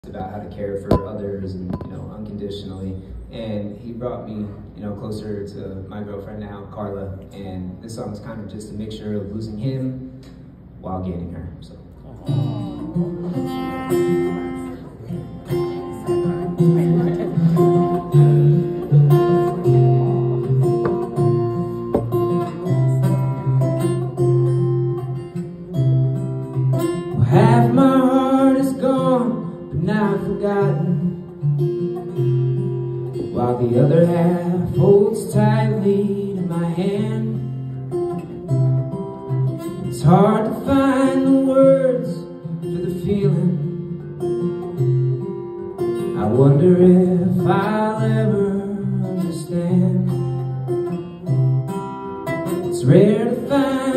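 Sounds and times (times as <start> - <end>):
acoustic guitar fingerstyle and strummed: 12.1 - 53.9
man singing: 27.1 - 31.3, 33.2 - 37.6, 39.8 - 43.9, 46.0 - 50.4, 52.6 - 53.9.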